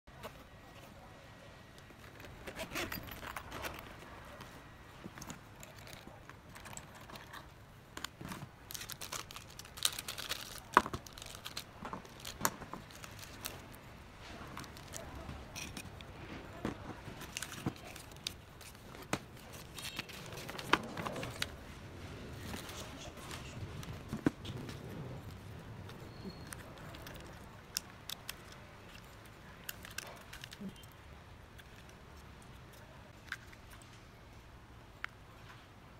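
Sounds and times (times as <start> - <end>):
plastic bags crinkling: 5.2 - 30.9
paper leaflets rustling: 8.0 - 30.8
plastic parts clicking on cardboard: 14.5 - 21.6, 22.4 - 33.8.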